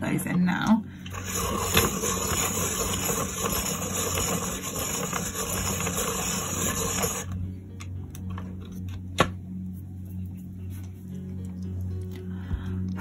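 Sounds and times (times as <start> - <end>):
pencil sharpener grinding: 1.0 - 7.4.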